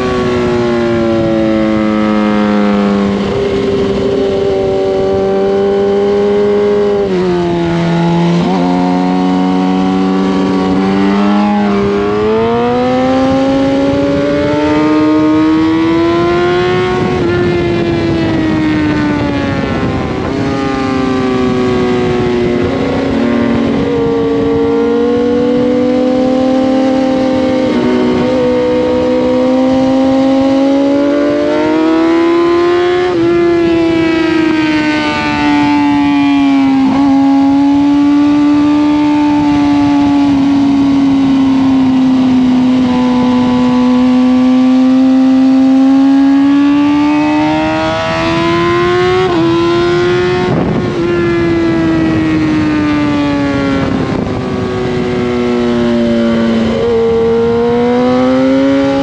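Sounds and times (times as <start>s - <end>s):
motorcycle engine at high revs: 0.0s - 59.0s.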